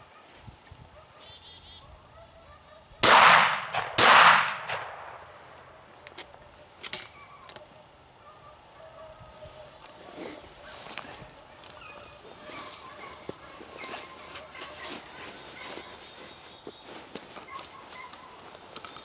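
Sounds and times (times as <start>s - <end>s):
gunshots with echo: 3.0s - 5.8s.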